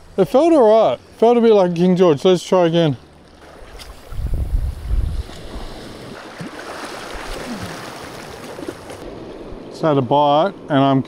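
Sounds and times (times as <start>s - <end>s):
wind buffeting microphone: 3.6s - 6.4s
small waves washing over rocks: 5.2s - 9.4s.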